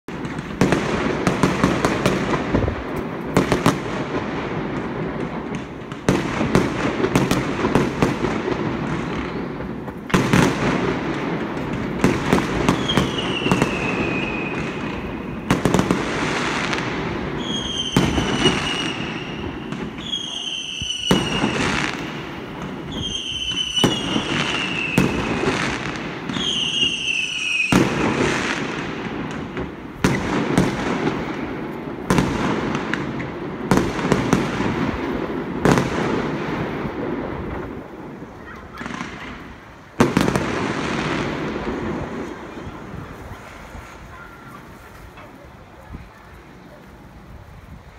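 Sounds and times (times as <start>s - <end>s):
firework bangs: 0.1s - 47.9s
firework crackling: 0.1s - 47.9s
falling firework whistles: 11.8s - 32.3s.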